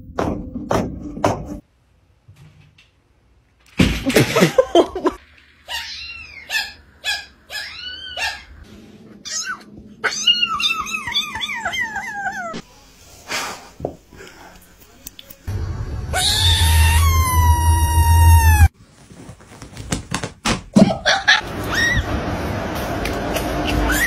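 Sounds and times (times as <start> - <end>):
kittens meowing: 5.7 - 8.5, 9.2 - 12.6.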